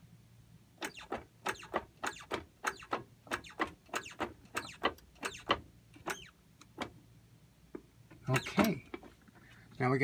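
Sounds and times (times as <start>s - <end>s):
hand press clicking and squeaking: 0.8s - 7.0s, 8.1s - 9.4s.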